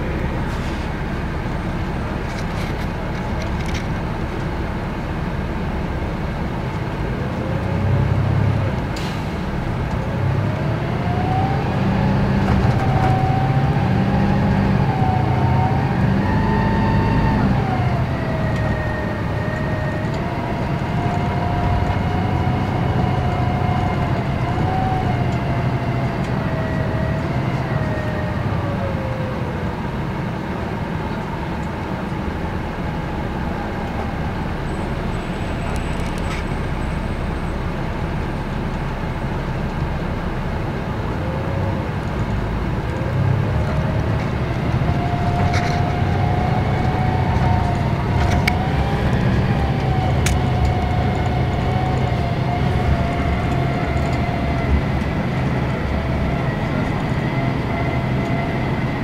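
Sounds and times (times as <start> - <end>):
bus diesel engine rumble: 0.0 - 59.0
drivetrain whine: 0.0 - 59.0
bus body rattles: 12.3 - 13.5.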